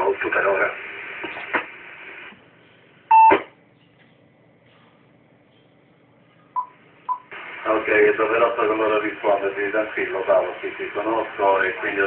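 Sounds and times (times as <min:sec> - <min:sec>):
static crackle: 0:00.0 - 0:02.4, 0:07.3 - 0:12.0.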